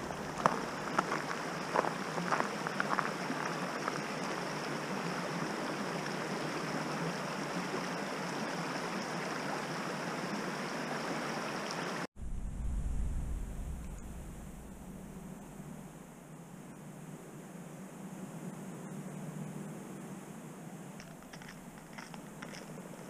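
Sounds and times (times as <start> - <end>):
footsteps: 0.0 - 3.1, 21.0 - 23.0
creek water rushing: 0.0 - 12.1.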